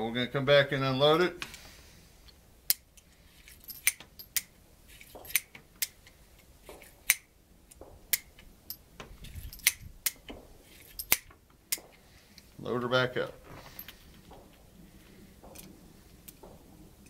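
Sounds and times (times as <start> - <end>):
revolver metallic clicks: 11.0 - 12.5.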